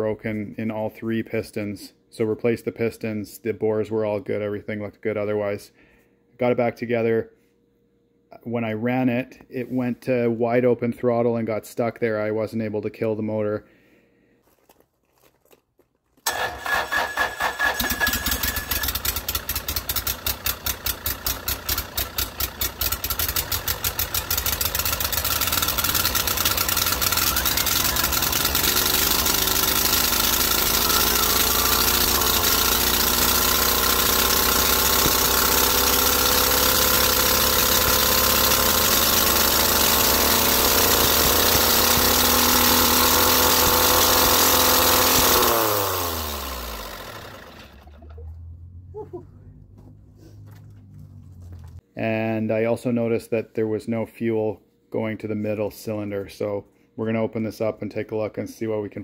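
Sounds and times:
diesel engine racing: 25.5s - 51.8s.

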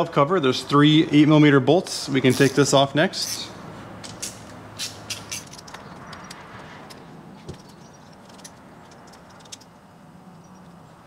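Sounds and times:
metallic clicks of bolts: 4.0s - 7.0s, 7.6s - 10.8s.

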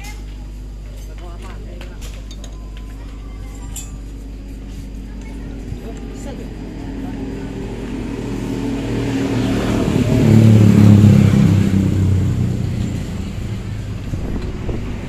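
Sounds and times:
diesel generator engine revving: 4.1s - 15.0s.

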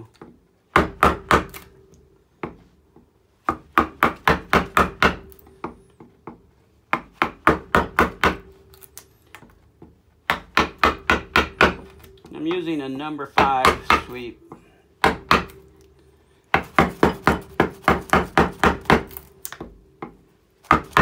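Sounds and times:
mallet tapping a carving gouge: 9.8s - 12.4s, 13.4s - 14.2s, 16.5s - 21.0s.

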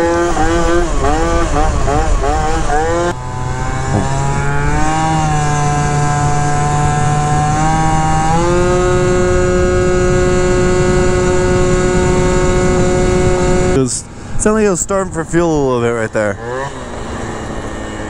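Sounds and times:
two-stroke scooter engine revving: 0.0s - 14.3s, 15.0s - 18.0s.

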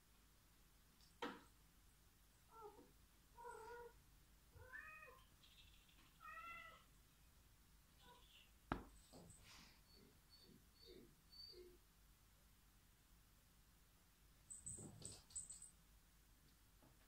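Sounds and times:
cat meowing softly: 2.5s - 6.9s.

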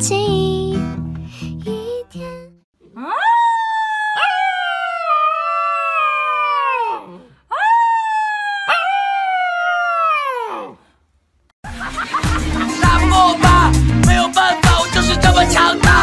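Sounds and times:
puppy howling: 2.9s - 10.8s.

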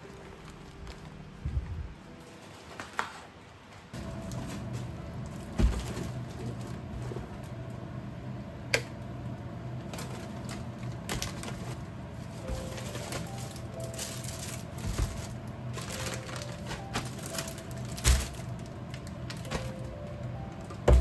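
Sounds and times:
steady low hum: 0.0s - 2.4s, 3.9s - 21.0s
plastic food packs handled: 0.0s - 7.6s, 9.8s - 21.0s
shopping bag thumping down: 5.4s - 6.3s, 12.4s - 18.7s.

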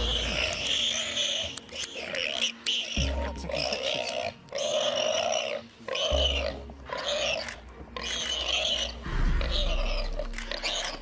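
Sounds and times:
warthog squealing: 0.0s - 11.0s
low rumble: 9.0s - 11.0s.

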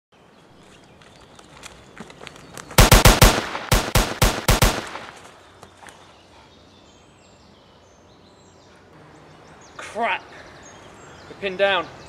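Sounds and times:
automatic gunfire bursts: 2.8s - 5.2s.

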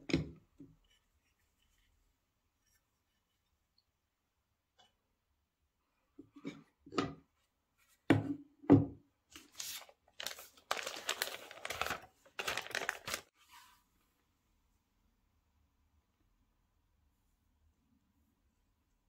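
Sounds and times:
packaging tearing and crinkling: 9.4s - 13.3s.

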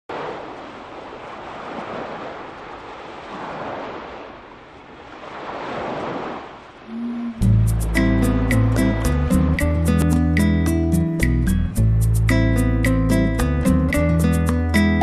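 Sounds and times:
sea waves washing: 0.1s - 11.3s.

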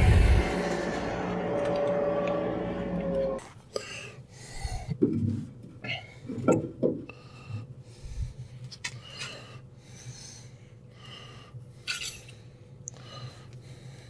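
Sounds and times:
steady low hum: 0.0s - 14.0s
man breathing heavily: 3.6s - 5.0s, 7.0s - 14.0s.

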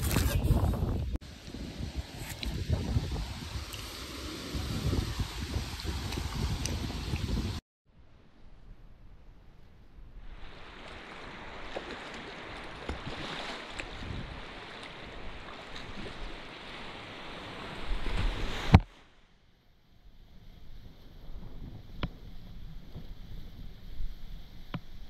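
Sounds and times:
river water rushing and splashing: 10.3s - 19.2s.

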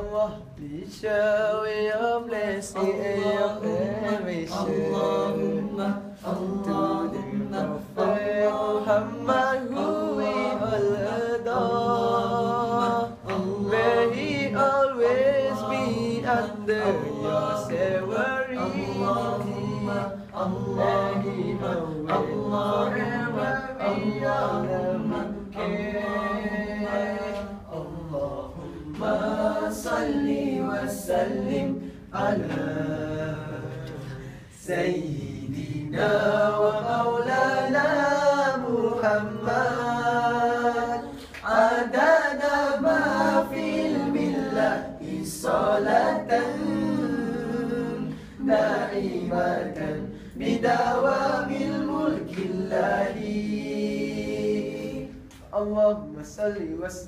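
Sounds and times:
male a cappella group singing: 0.0s - 57.0s.

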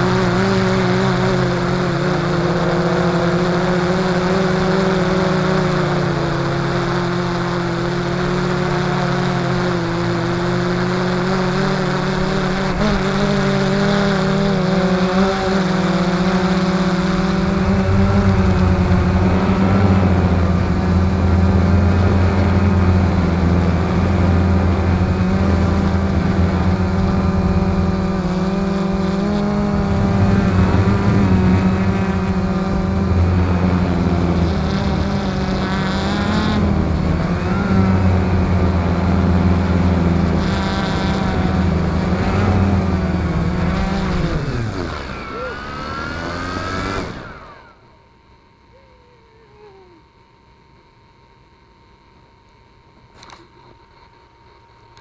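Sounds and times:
quadcopter motors buzzing: 0.0s - 55.0s.

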